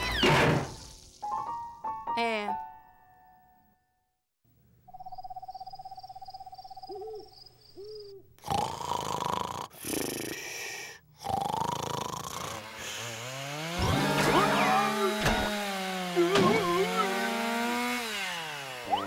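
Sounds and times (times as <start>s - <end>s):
owl hoots: 6.7s - 8.3s
cartoon crow snoring: 8.4s - 13.1s.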